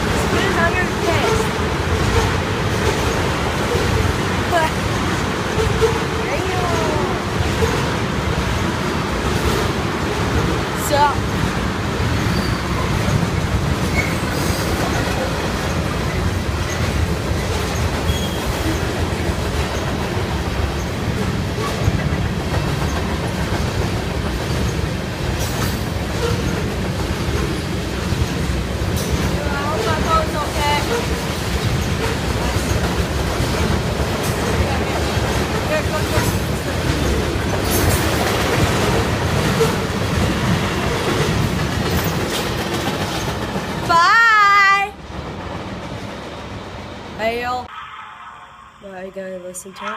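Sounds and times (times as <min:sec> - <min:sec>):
train wheels rumbling on rail: 0:00.0 - 0:47.7
faint wheel squeals: 0:12.2 - 0:13.0, 0:18.1 - 0:18.6.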